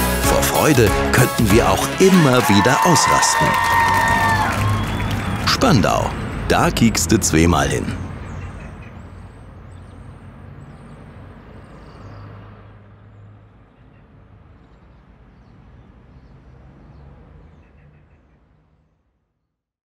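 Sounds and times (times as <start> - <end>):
distant traffic hum: 0.6 - 19.2.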